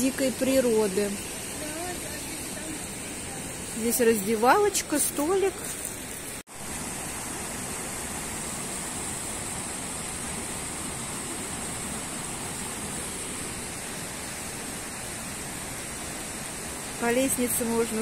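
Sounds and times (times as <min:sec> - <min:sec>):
river water rushing over rocks: 0:00.2 - 0:18.0.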